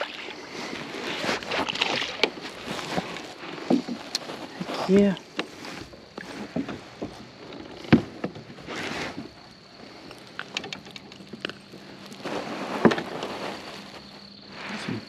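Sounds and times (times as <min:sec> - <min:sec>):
clicks and rattles: 0:10.0 - 0:11.7.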